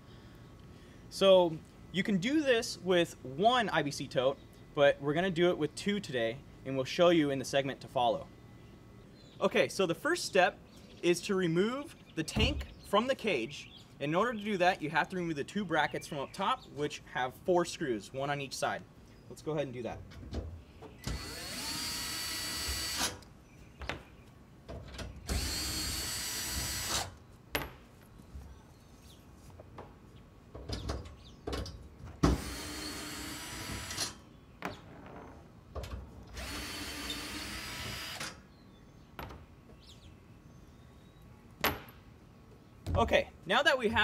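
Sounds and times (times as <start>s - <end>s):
cordless drill motor whine: 21.0s - 23.2s, 25.3s - 27.1s, 32.4s - 34.2s, 36.4s - 38.3s.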